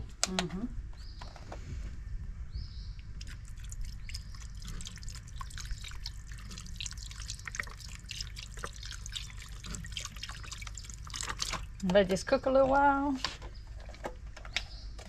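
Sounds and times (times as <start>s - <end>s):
sauce bubbling in a pot: 3.1s - 11.8s
small pops and plops: 3.1s - 12.1s.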